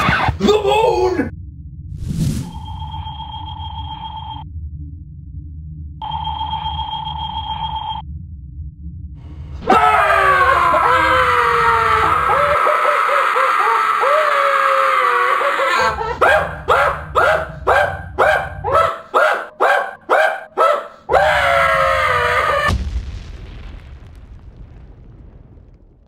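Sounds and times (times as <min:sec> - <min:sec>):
people screaming in panic: 0:09.6 - 0:16.5, 0:21.1 - 0:22.7
boom: 0:22.6 - 0:26.0.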